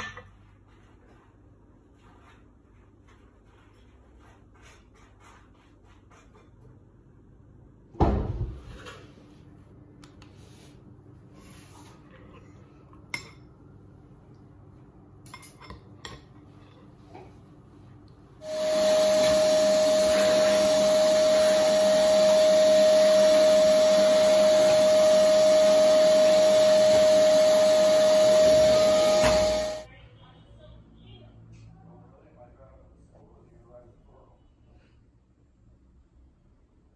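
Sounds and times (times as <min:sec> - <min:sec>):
vacuum cleaner running: 0:18.4 - 0:29.9.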